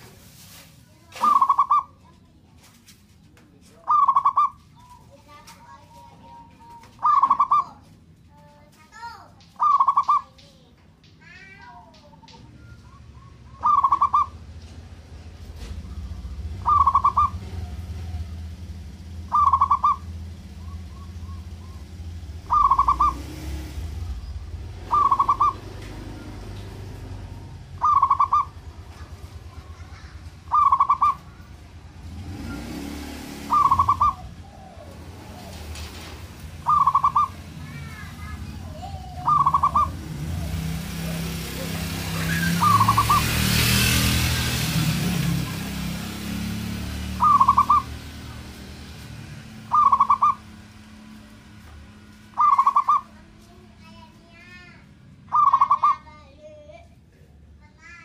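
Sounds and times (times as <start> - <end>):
small birds chirping: 0.8 - 56.9
dove cooing: 1.2 - 2.0, 3.8 - 7.8, 9.6 - 10.3, 12.1 - 14.5, 16.0 - 31.5, 33.4 - 43.4, 47.1 - 48.1, 49.6 - 50.6, 52.4 - 53.2, 55.3 - 56.1
low steady rumble: 3.0 - 32.6.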